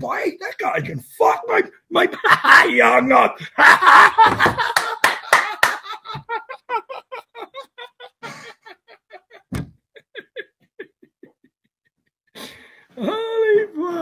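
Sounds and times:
man laughing hard: 0:02.0 - 0:11.6.

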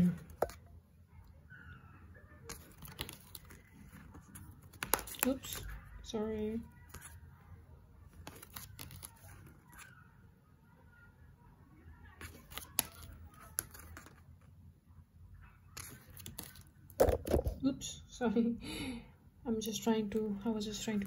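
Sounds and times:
cards clicking and sliding: 0:02.5 - 0:05.7, 0:08.2 - 0:09.9, 0:12.2 - 0:14.2, 0:15.7 - 0:17.6.

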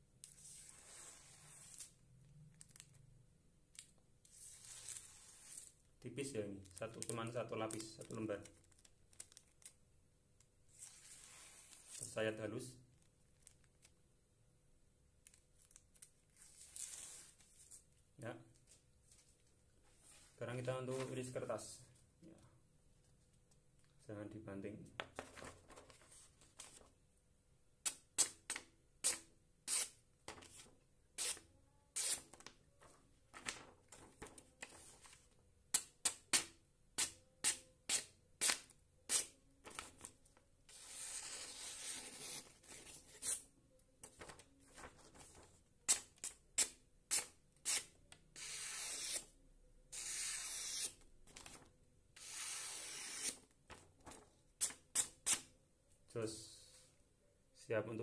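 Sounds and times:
knife slicing paper hiss: 0:50.0 - 0:50.9.

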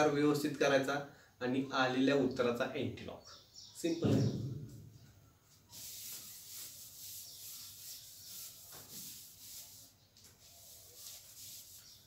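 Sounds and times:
eraser rubbing on whiteboard: 0:05.5 - 0:12.0.

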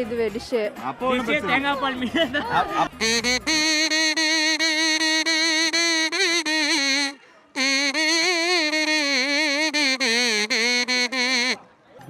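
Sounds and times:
melody of wavering held notes: 0:03.0 - 0:11.6.

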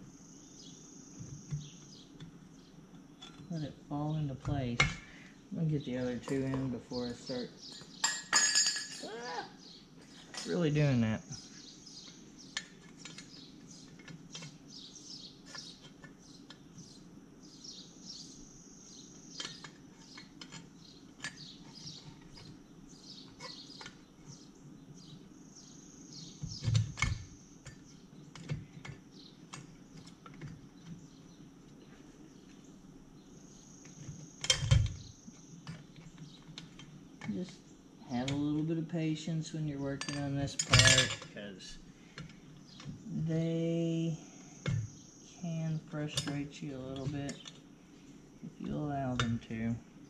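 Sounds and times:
small birds chirping: 0:00.0 - 0:50.0
faint clicks of metal parts: 0:02.9 - 0:03.5, 0:12.0 - 0:14.6, 0:19.3 - 0:22.6, 0:23.2 - 0:24.4, 0:26.4 - 0:32.6, 0:33.8 - 0:38.7, 0:40.0 - 0:43.0, 0:46.1 - 0:47.7.

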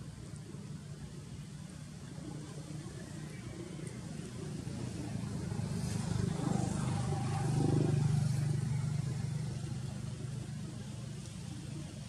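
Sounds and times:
vehicle engine passing: 0:04.3 - 0:12.0.

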